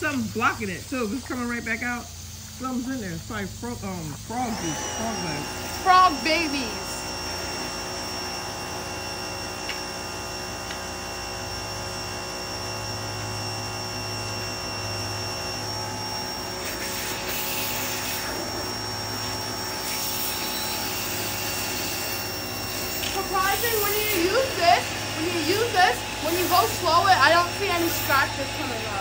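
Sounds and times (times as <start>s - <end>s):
pressure washer spraying: 3.8s - 8.8s, 16.2s - 29.0s.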